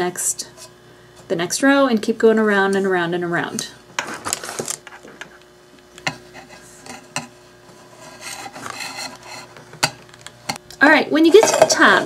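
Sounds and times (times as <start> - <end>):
rope scraping against tin can: 7.8 - 9.6.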